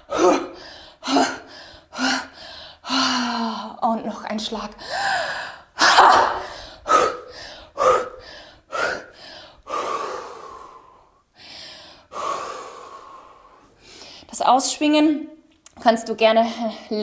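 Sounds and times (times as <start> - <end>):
sharp out-breaths: 4.8 - 14.3.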